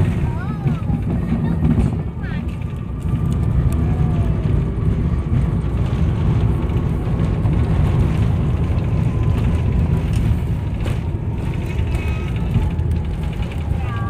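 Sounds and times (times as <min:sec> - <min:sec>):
aircraft cabin rumble: 0:00.0 - 0:14.0.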